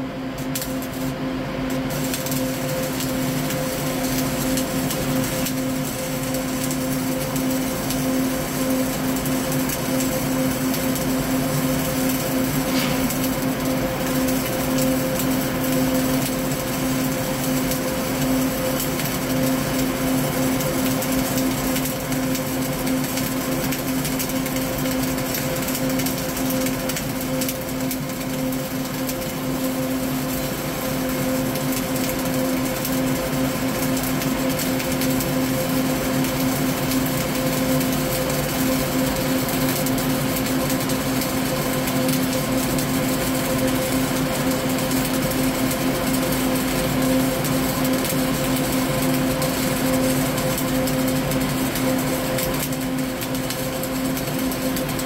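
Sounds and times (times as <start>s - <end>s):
steady hum: 0.0s - 22.8s
welding arc crackling: 0.0s - 55.0s.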